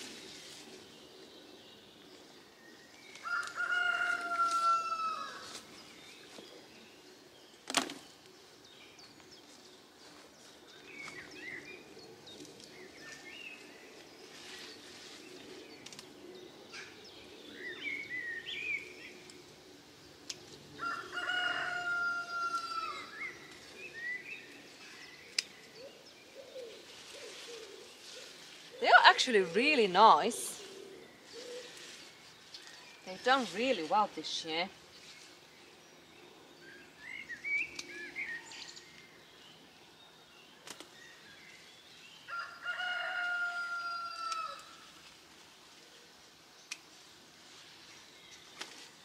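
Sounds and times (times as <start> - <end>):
small birds chirping: 0.0 - 43.2
rooster crowing: 3.2 - 5.4, 20.8 - 23.1, 42.3 - 44.6.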